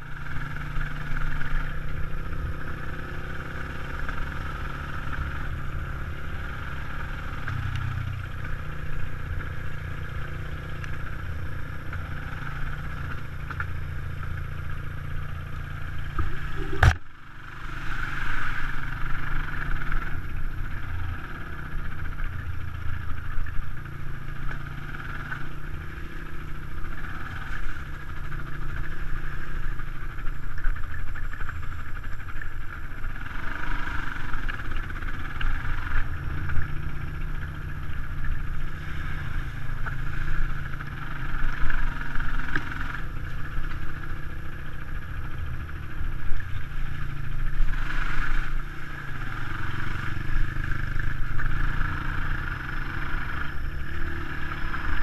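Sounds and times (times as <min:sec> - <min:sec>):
dirt bike engine revving: 0:33.1 - 0:55.0.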